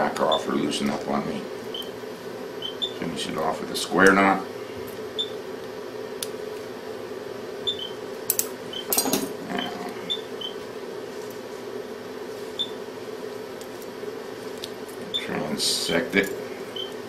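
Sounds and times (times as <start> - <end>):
steady low hum: 0.0 - 17.0
metal instruments clinking: 8.3 - 9.4.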